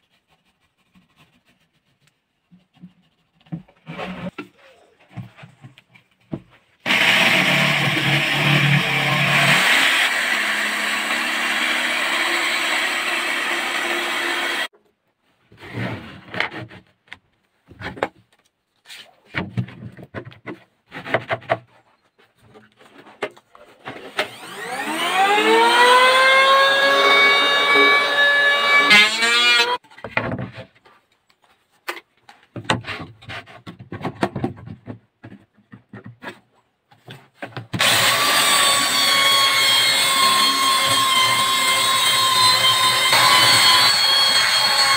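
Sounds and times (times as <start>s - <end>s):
jigsaw cutting wood: 6.8s - 14.7s, 24.0s - 29.8s, 37.8s - 44.9s
belt sander on wood: 6.9s - 14.7s, 24.1s - 29.8s, 37.8s - 44.9s
power tool motor whining: 24.1s - 29.8s, 37.8s - 44.9s.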